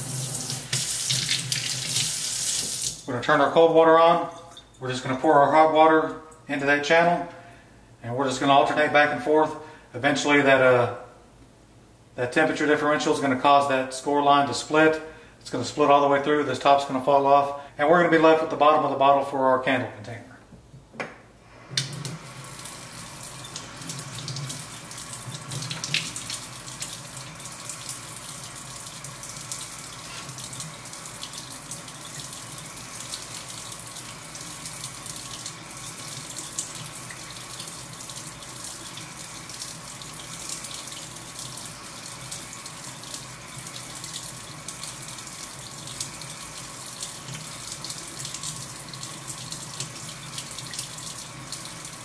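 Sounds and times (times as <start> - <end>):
faucet running into a steel sink: 0.0 - 3.0, 21.8 - 52.0.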